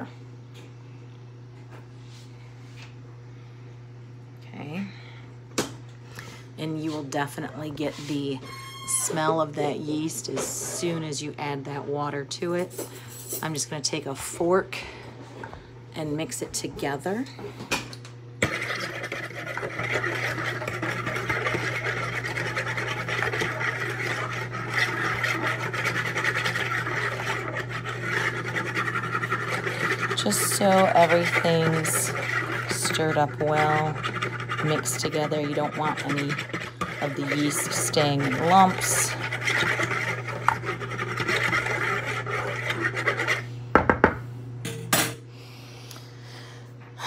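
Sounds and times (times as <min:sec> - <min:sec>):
metal fork scraping a bowl: 0:18.4 - 0:43.5.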